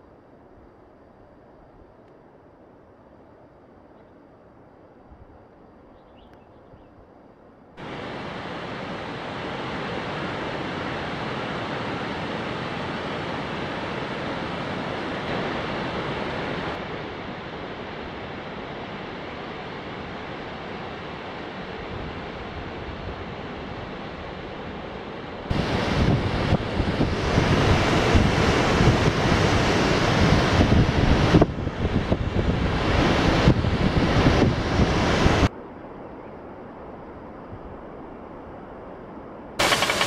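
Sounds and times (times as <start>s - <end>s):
waterfall rushing: 7.8s - 16.8s, 39.6s - 40.0s
wind buffeting microphone: 25.5s - 35.5s
stream pouring down wooden chute: 39.6s - 40.0s.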